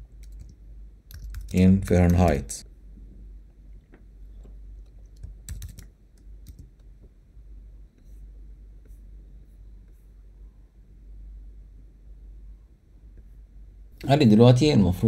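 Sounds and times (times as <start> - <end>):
computer keyboard clicks: 0.2 - 2.4, 5.0 - 6.9.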